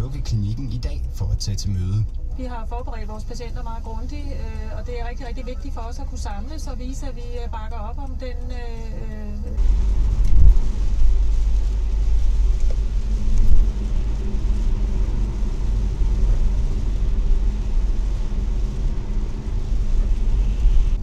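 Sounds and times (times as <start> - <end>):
engine and tyre rumble: 0.0 - 21.0
hiss of tyres on wet road: 9.6 - 21.0.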